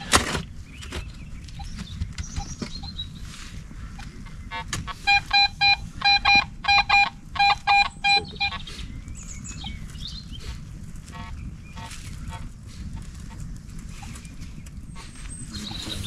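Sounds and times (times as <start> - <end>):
metal detector short beeps: 5.0 - 8.6.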